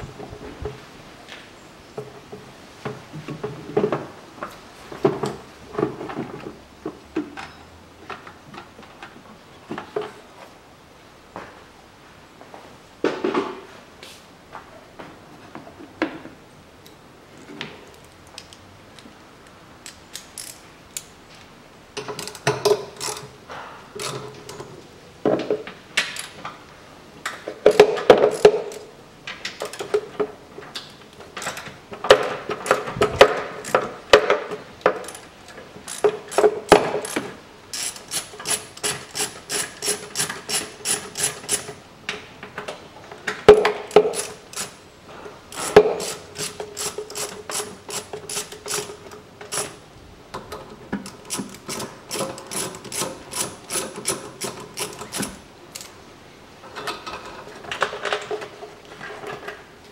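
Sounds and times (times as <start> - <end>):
hand ratchet clicking: 19.8 - 21.1, 22.1 - 23.3, 27.6 - 28.8, 35.0 - 35.3, 35.9 - 41.8, 43.9 - 44.8, 45.5 - 49.8, 51.0 - 55.9.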